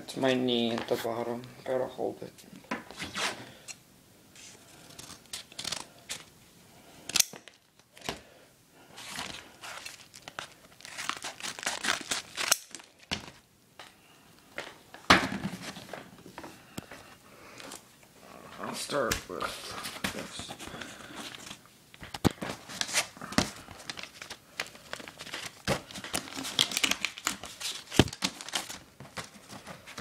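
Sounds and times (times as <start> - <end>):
packages tearing and crinkling: 4.4 - 6.3, 9.0 - 13.9, 19.7 - 30.0.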